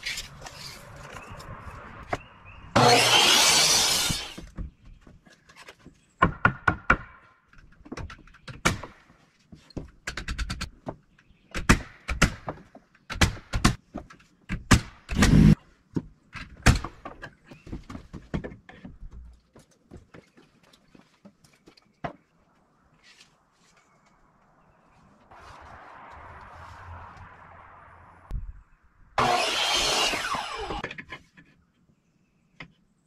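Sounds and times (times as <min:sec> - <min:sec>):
knocks of wood and tools: 0:04.2 - 0:22.4, 0:29.2 - 0:31.6.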